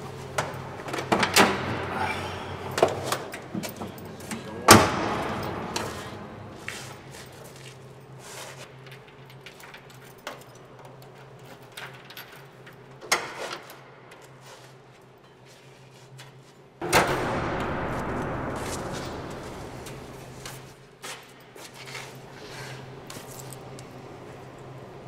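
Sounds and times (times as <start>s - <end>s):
steady low hum: 0.0s - 13.0s, 13.7s - 25.0s
loud noisy hit: 16.8s - 20.8s.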